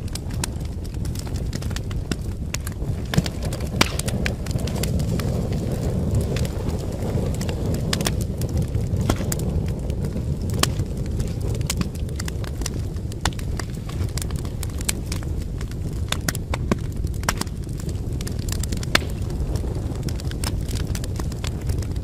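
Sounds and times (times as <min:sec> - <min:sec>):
low fire rumble: 0:00.0 - 0:22.0
wood fire crackling and popping: 0:00.0 - 0:22.0.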